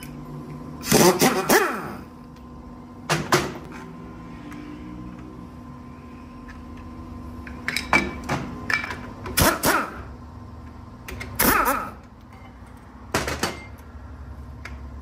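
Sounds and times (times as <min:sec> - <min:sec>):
steady hum: 0:00.0 - 0:15.0
tools and engine parts clattering: 0:07.4 - 0:09.4, 0:12.2 - 0:13.8.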